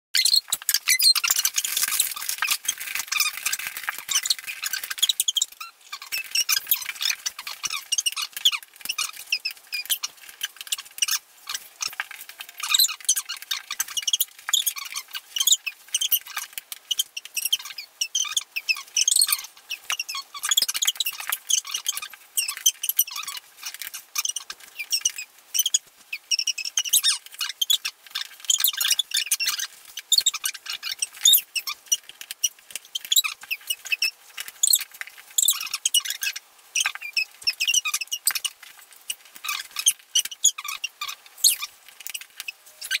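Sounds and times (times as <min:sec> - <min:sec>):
rapid high-pitched squeaks and clicks: 0:00.1 - 0:43.0.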